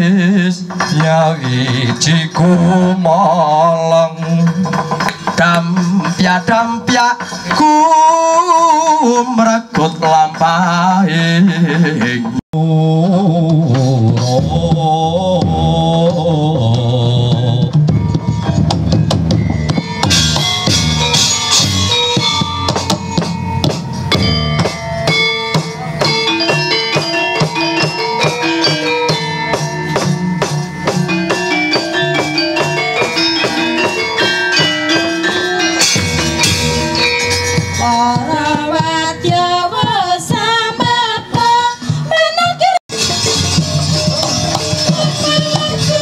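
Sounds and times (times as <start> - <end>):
hand drum strokes: 13.0 - 41.7, 42.6 - 46.0
struck bronze metallophone notes: 13.7 - 42.0, 42.9 - 46.0
wavering melodic line: 17.8 - 39.7.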